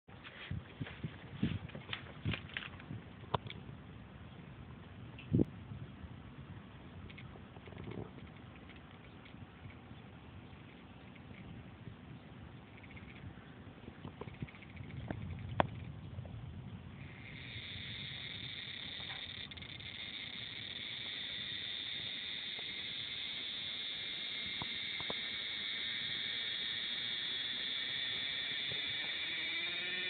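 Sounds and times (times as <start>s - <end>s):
cicada buzzing: 12.7s - 13.2s, 14.3s - 15.9s, 17.0s - 30.0s.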